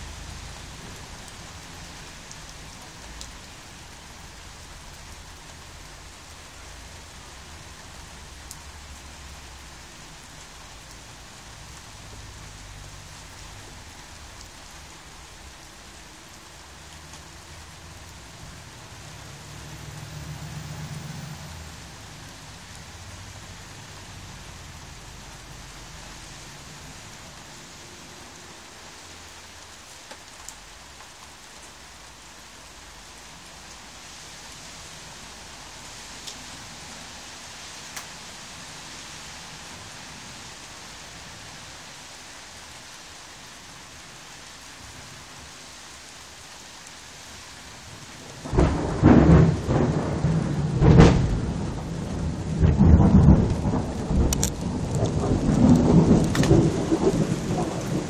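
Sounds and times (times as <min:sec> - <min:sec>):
rain on concrete: 0:00.0 - 0:58.0
thunder rumbling: 0:48.4 - 0:58.0.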